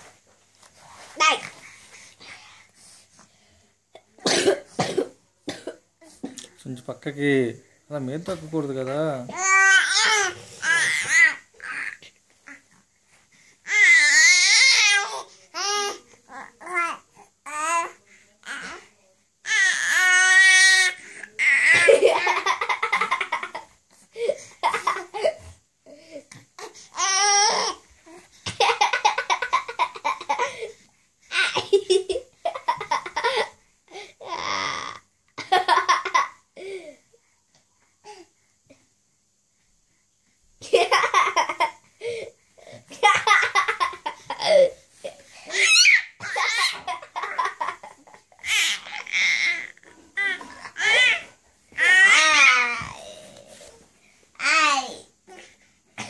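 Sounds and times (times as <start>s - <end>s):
baby squealing: 45.5s - 46.9s
baby laughing: 45.5s - 49.6s.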